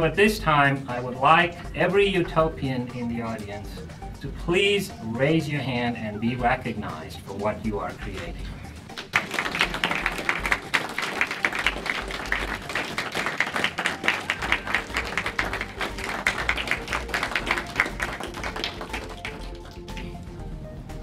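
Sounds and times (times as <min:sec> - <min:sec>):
audience applauding: 0:08.9 - 0:20.2.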